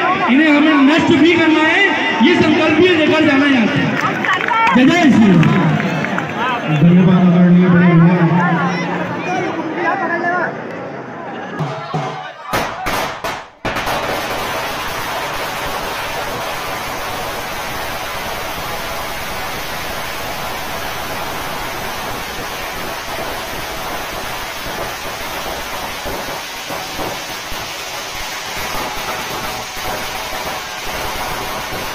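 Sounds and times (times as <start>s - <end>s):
firecrackers crackling: 12.5s - 31.9s.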